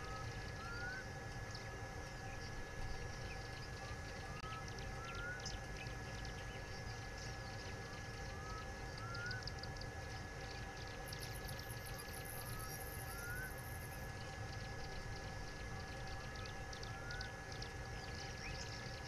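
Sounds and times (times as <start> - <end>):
small bird chirps: 0.0 - 7.6
rising whistled bird notes: 12.3 - 13.5.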